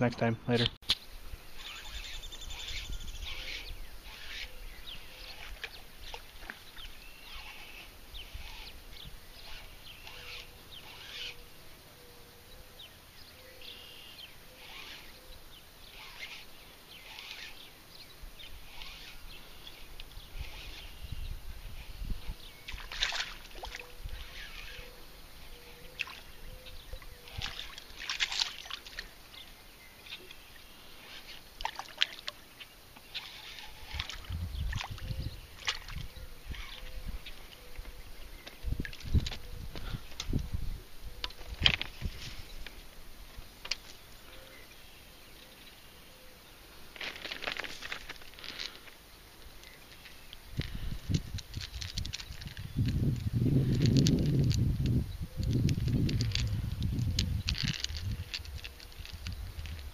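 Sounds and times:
small birds chirping: 0:00.0 - 0:59.9
wind rumble on microphone: 0:20.0 - 0:25.6, 0:33.8 - 0:42.7, 0:50.5 - 0:59.9.

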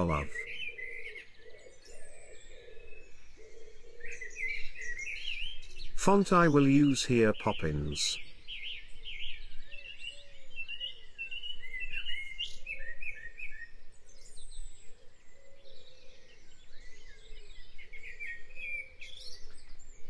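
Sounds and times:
lower bird call: 0:00.0 - 0:20.0.

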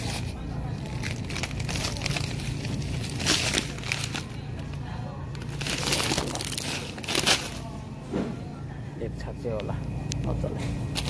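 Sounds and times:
plastic bag crinkling: 0:00.0 - 0:07.7
steady low hum: 0:00.0 - 0:11.0.

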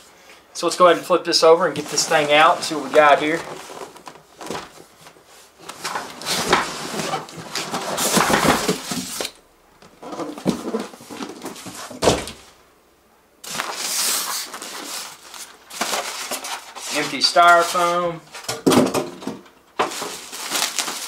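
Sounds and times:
cardboard and foam scraping: 0:01.7 - 0:09.3
packing rustling: 0:01.7 - 0:09.4, 0:13.4 - 0:18.5, 0:19.8 - 0:21.0.

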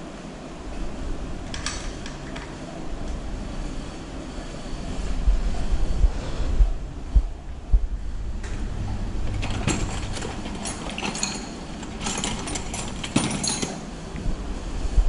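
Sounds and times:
metal tools clinking and rattling: 0:09.4 - 0:13.9.

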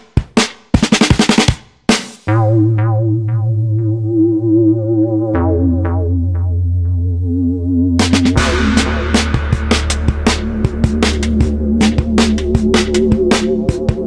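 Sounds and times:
drum fill: 0:00.0 - 0:04.0, 0:07.9 - 0:14.0
electronic drum beat: 0:00.0 - 0:07.0, 0:07.8 - 0:14.0
deep bass: 0:02.3 - 0:14.0
held synthesizer chord: 0:02.3 - 0:14.0
short plucked notes: 0:02.3 - 0:14.0.

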